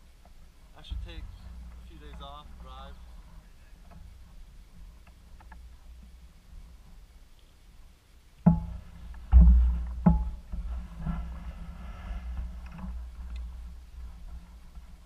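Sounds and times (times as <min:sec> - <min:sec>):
sharp knocks: 0:08.4 - 0:11.2
mountain bike clattering on dirt: 0:08.4 - 0:15.0.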